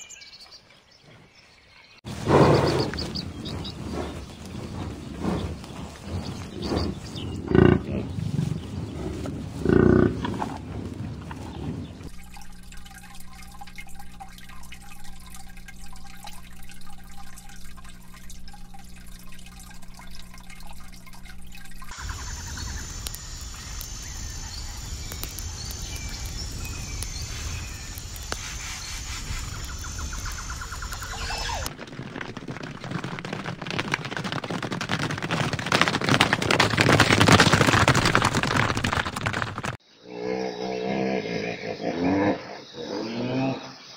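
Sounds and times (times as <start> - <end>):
horses galloping on dirt: 2.1 - 12.7, 15.0 - 39.8
steady low hum: 2.1 - 31.7
water dripping and trickling: 11.0 - 31.8.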